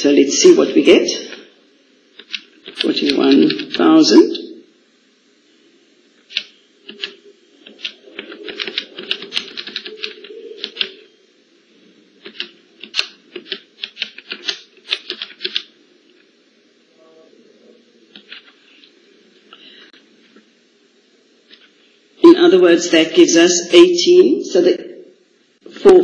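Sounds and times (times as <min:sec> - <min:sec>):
calculator keys clicking: 0:02.2 - 0:03.8, 0:06.3 - 0:11.0, 0:12.2 - 0:15.7.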